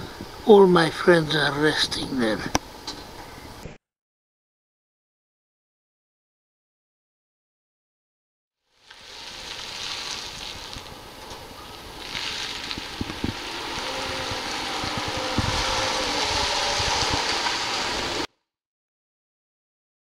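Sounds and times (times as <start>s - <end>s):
steady outdoor hiss: 0.0s - 3.8s, 8.6s - 18.3s
wind buffeting microphone: 10.0s - 18.3s.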